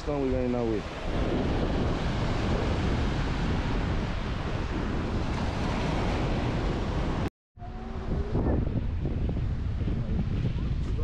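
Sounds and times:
surf breaking on beach: 0:00.0 - 0:07.3, 0:07.9 - 0:11.0
wind buffeting microphone: 0:00.0 - 0:11.0.

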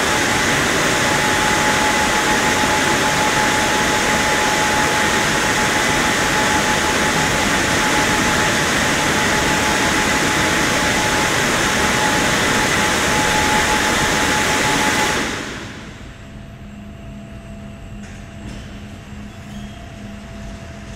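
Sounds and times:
car wash drying blowers: 0:00.0 - 0:16.3.

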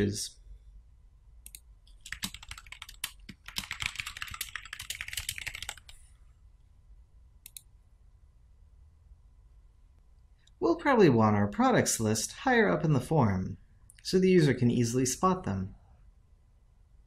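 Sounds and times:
typing on computer keyboard: 0:01.5 - 0:06.0.

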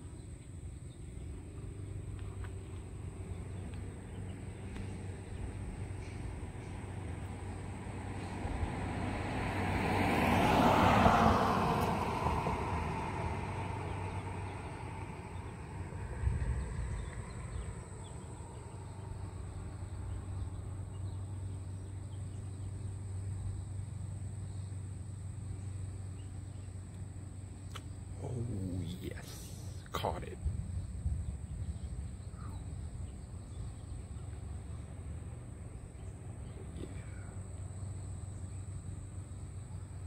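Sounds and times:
car driving past: 0:01.8 - 0:23.2.

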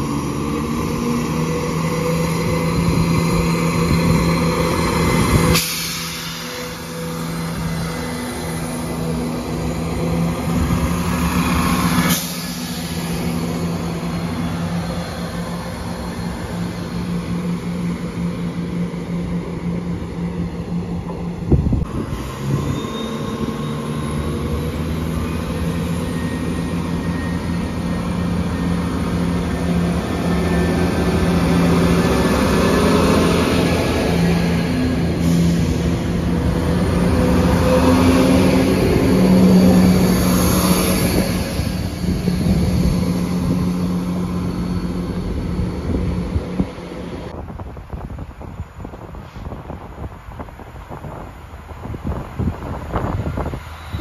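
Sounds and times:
train squealing: 0:00.0 - 0:47.3, 0:52.6 - 0:54.0
diesel train engines humming: 0:00.0 - 0:54.0.

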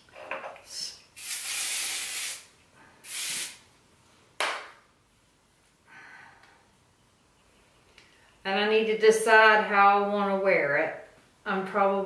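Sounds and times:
hairspray hissing: 0:01.1 - 0:03.6.

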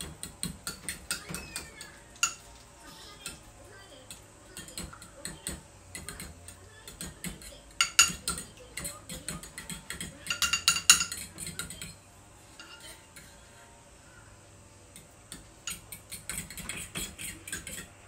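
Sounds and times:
metal spoon clinking ceramic bowl: 0:07.8 - 0:08.4, 0:10.2 - 0:11.9.

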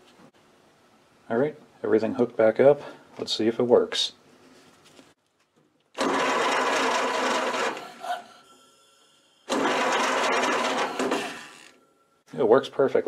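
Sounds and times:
starter motor cranking engine: 0:05.9 - 0:08.3, 0:09.4 - 0:11.8.

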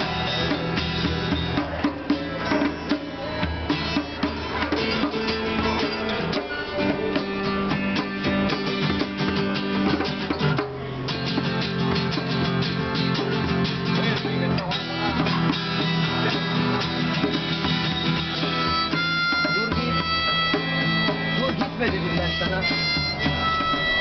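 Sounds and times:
acoustic guitar strumming: 0:00.0 - 0:24.0
hand drum beating: 0:00.0 - 0:24.0.

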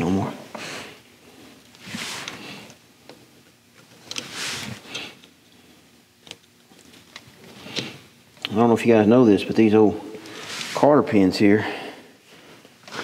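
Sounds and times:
tools scraping and rustling: 0:01.6 - 0:02.8, 0:03.8 - 0:05.6, 0:10.1 - 0:11.0.

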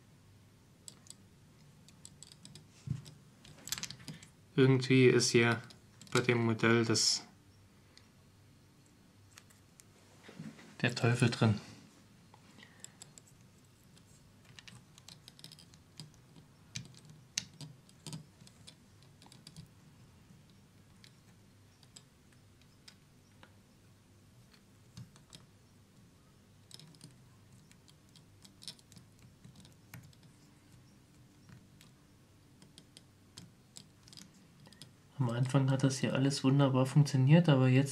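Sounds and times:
plastic parts clicking: 0:12.6 - 0:19.7, 0:26.6 - 0:32.0, 0:32.6 - 0:34.9.

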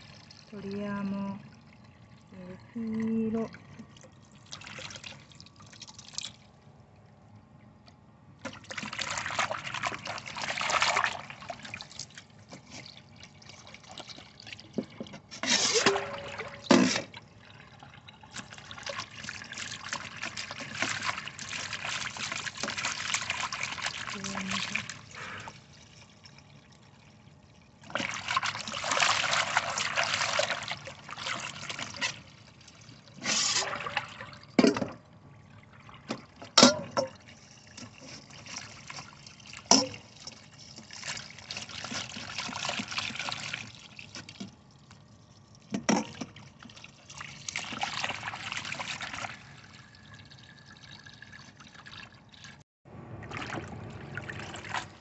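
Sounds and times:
water pouring away: 0:08.6 - 0:34.6, 0:46.3 - 0:55.0.

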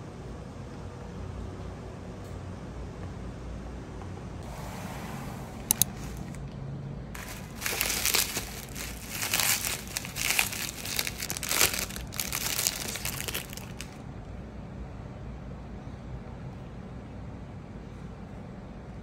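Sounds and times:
bubble wrap crinkling: 0:05.7 - 0:06.4, 0:07.2 - 0:14.0.

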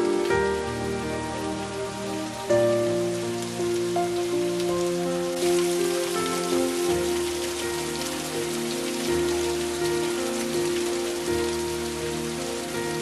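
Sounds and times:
soft background music: 0:00.0 - 0:13.0
waterfall splashing: 0:00.0 - 0:13.0.

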